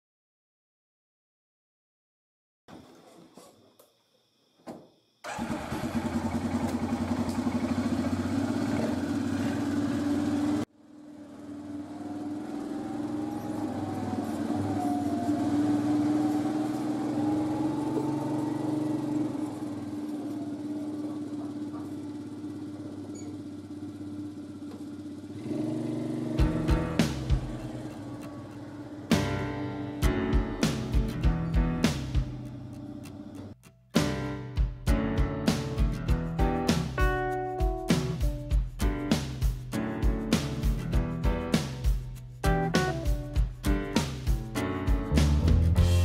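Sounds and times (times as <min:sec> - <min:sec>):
atv engine: 0:05.2 - 0:29.9.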